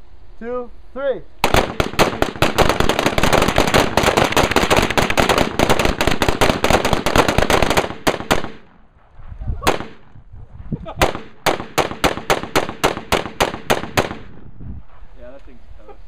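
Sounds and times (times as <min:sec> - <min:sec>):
guns firing in a volley: 0:01.4 - 0:08.8, 0:09.6 - 0:10.1, 0:11.0 - 0:14.4.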